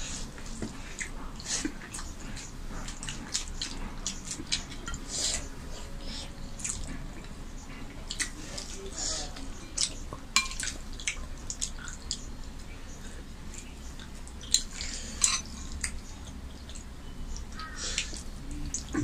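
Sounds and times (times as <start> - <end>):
wet clicks of eating by hand: 0.6 - 5.0, 6.6 - 7.4, 8.1 - 8.7, 9.7 - 12.8, 13.6 - 15.0, 15.7 - 19.0
spoon clinking against bowl: 10.4 - 10.7, 15.2 - 15.5.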